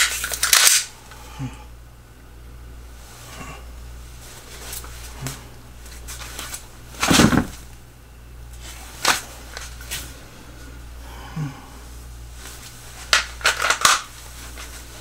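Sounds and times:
pistol handling clicks: 0:00.1 - 0:00.9
feet shifting: 0:04.2 - 0:07.7.

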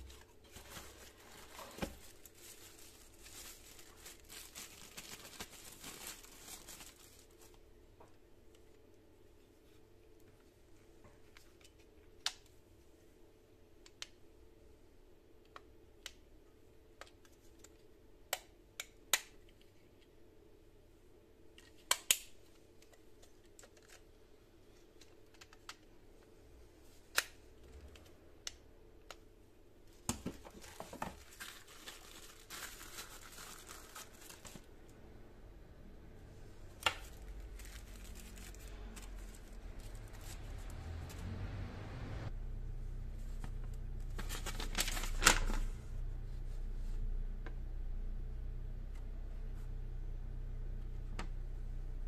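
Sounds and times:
tissue paper crinkling: 0:00.0 - 0:07.6, 0:30.4 - 0:34.7, 0:37.0 - 0:40.7, 0:44.2 - 0:45.7.

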